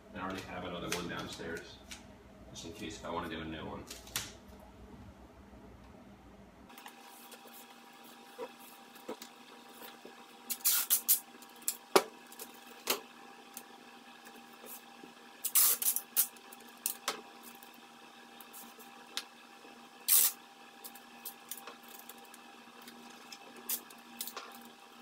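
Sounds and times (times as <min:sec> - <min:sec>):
masking tape ripping off roll: 0:10.5 - 0:11.2, 0:15.4 - 0:17.0, 0:20.1 - 0:22.0
sharp clicks of tape tearing: 0:10.5 - 0:11.2, 0:15.4 - 0:17.0, 0:20.1 - 0:20.4.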